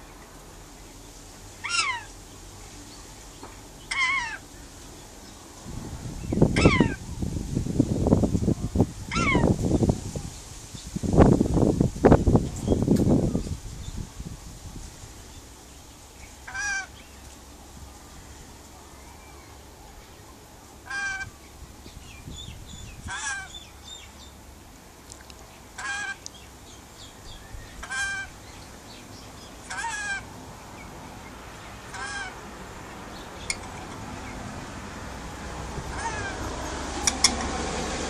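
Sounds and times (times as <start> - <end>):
bird calling: 1.6 - 2.2, 3.8 - 4.5, 6.2 - 7.0, 9.1 - 9.5, 16.2 - 17.2, 20.8 - 24.4, 25.8 - 32.4, 35.9 - 37.4.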